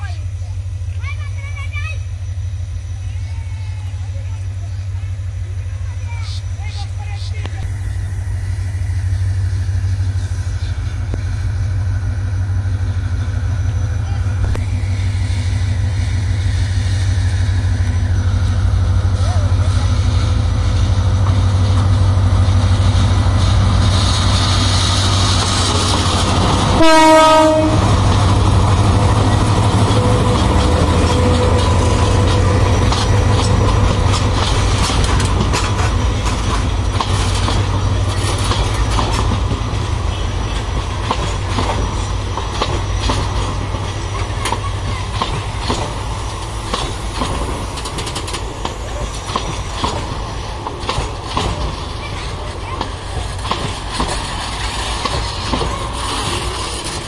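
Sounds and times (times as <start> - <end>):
locomotive engine drone: 0.0 - 57.0
train wheels clicking over rail joints: 4.4 - 57.0
train horn blast: 26.6 - 28.1.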